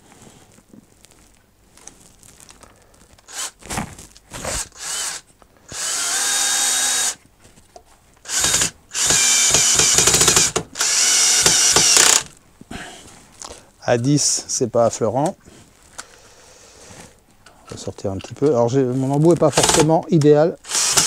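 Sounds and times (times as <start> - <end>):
cordless drill motor whining: 3.2 - 3.6, 4.4 - 7.2, 8.2 - 12.3, 19.5 - 19.9, 20.6 - 21.0
drill clutch clicking: 4.6 - 7.2, 8.2 - 12.3, 19.5 - 19.9, 20.6 - 21.0.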